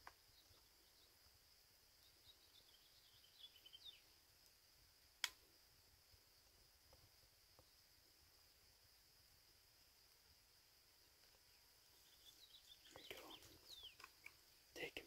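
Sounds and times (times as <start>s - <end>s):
faint bird chirps: 0.0s - 4.4s, 11.0s - 15.0s.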